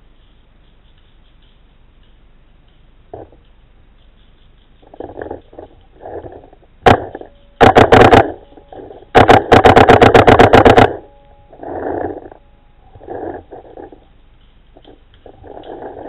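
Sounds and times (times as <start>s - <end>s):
paintball marker firing: 6.9s - 11.0s.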